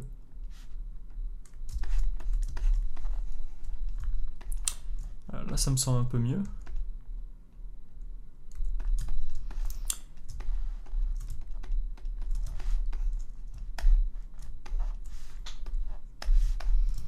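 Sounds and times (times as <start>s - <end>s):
stylus tapping graphics tablet: 1.0s - 5.2s, 8.5s - 17.0s
computer keyboard clicks: 6.4s - 6.9s, 8.5s - 14.8s.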